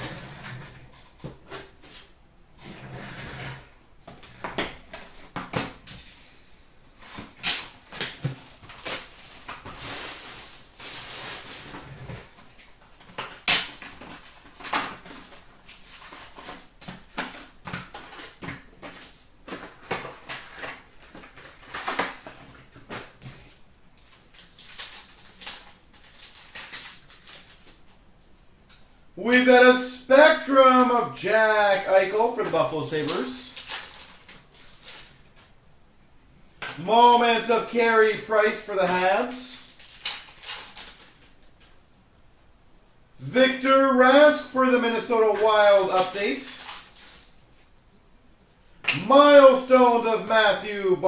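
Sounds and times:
foil packs rustling and crinkling: 7.0s - 28.0s, 31.5s - 35.6s, 36.7s - 41.8s, 44.2s - 47.9s.

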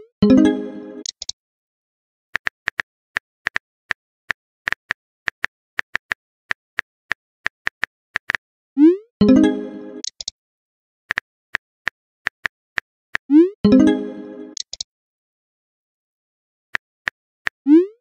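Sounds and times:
phone keyboard typing clicks: 10.0s - 10.3s.

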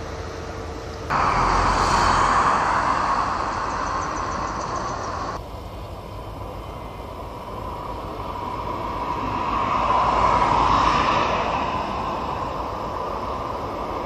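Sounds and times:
vehicle passing by: 1.1s - 5.4s, 8.4s - 13.5s.

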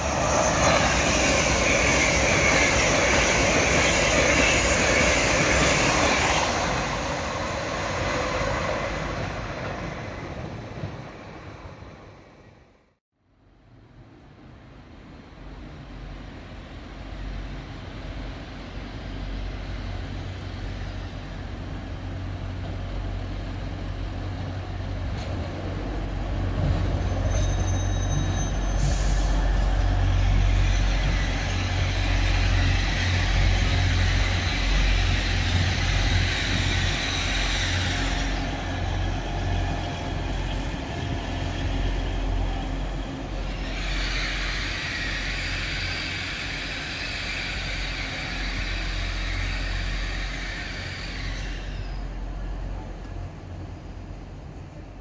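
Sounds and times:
diesel train rumble: 0.0s - 12.8s, 13.7s - 55.0s
high brake squeal: 26.9s - 34.6s, 40.6s - 52.4s.

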